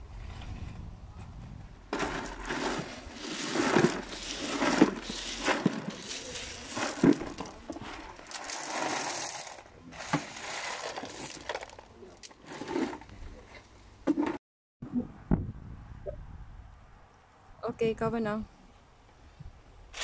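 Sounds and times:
gravel pouring from bucket: 1.9s - 13.1s.

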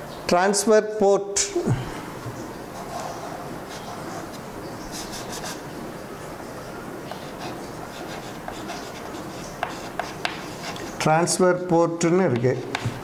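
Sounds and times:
chalk scratching on blackboard: 2.8s - 5.6s, 7.1s - 11.0s, 12.6s - 13.0s
chalk tapping on board: 7.1s - 10.9s, 12.3s - 13.0s.

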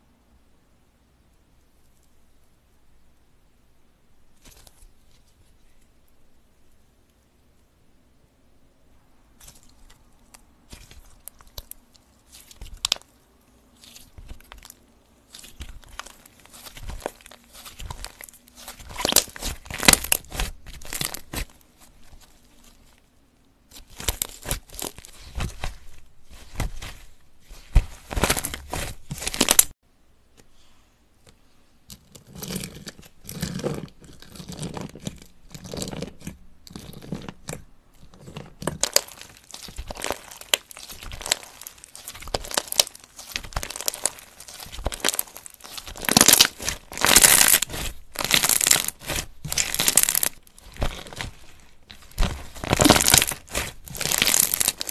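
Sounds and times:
slime squeezed wet crackling: 13.7s - 22.9s, 23.7s - 29.7s, 38.6s - 54.9s.

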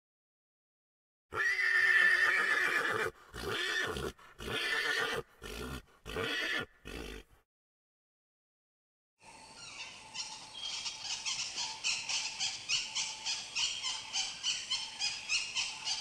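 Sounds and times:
horse neighing: 1.3s - 7.4s.

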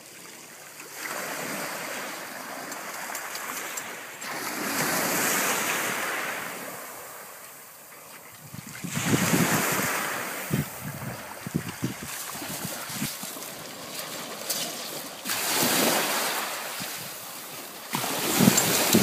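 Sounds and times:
waves breaking on pebble beach: 0.0s - 7.4s, 8.8s - 19.0s
wind buffeting microphone: 8.3s - 14.2s, 15.4s - 19.0s.

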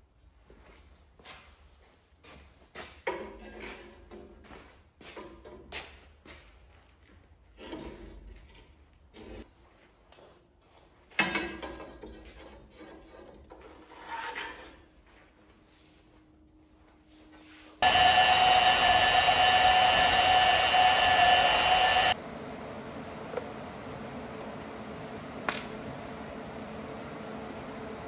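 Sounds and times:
band saw cutting steel: 17.8s - 22.2s.

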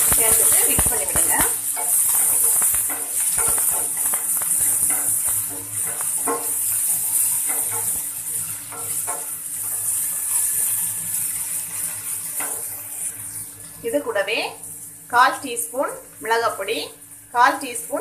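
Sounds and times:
spatula scraping and tapping pan: 0.0s - 12.9s
vegetables sizzling in oil: 0.0s - 18.0s.

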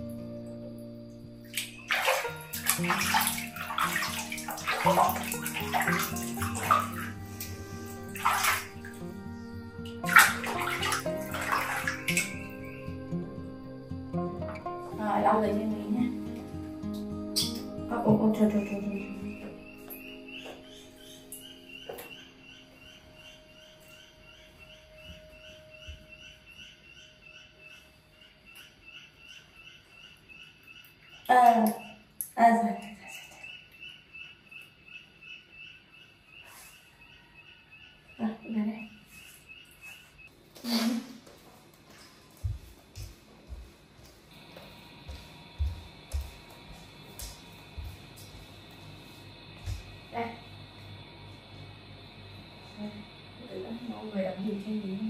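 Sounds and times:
water splashing in plastic basin: 1.5s - 9.0s, 10.0s - 12.5s
evenly spaced chirping: 17.0s - 32.2s
faint steady hum: 41.4s - 55.0s.

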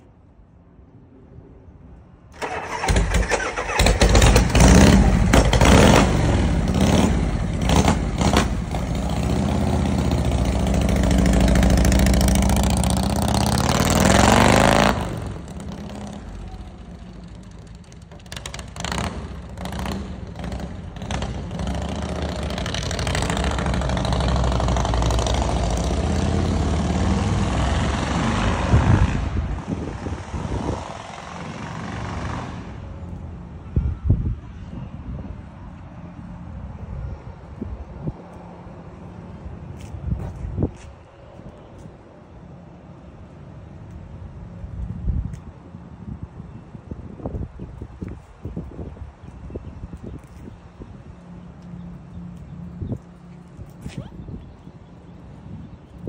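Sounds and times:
motorcycle engine revving: 2.4s - 32.8s.

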